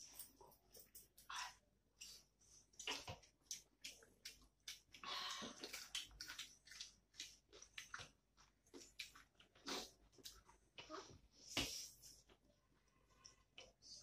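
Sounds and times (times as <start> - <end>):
wet chewing: 2.0 - 11.1.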